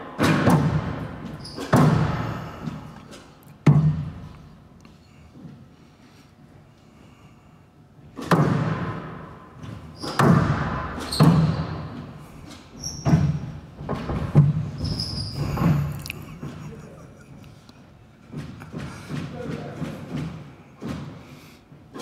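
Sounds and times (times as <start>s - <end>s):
squash ball hits echoing: 0.1s - 2.8s, 3.6s - 4.2s, 8.2s - 9.4s, 10.0s - 12.0s
shoes squeaking on wooden floor: 11.0s - 16.7s.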